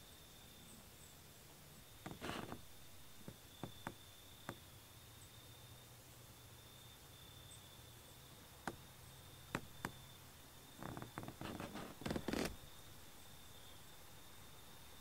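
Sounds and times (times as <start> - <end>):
rustling and crackling: 1.9 - 4.6, 10.7 - 12.7.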